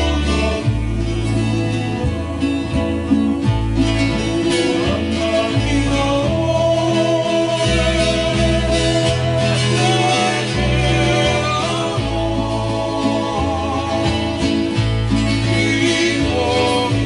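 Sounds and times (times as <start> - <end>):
man singing: 0.0 - 3.2, 3.8 - 17.0
plucked bass line: 0.0 - 17.0
strummed ukulele: 0.0 - 17.0.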